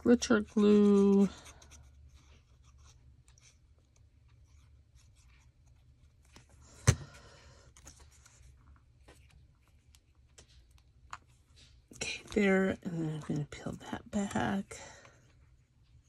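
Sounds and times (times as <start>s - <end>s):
paper rustling and scratching: 0.0s - 6.5s.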